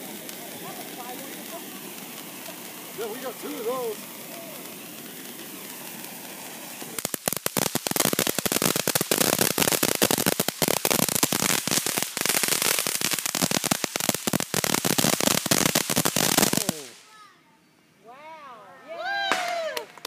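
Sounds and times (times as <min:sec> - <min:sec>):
firework fountain crackling: 0:00.0 - 0:17.2, 0:19.0 - 0:20.0.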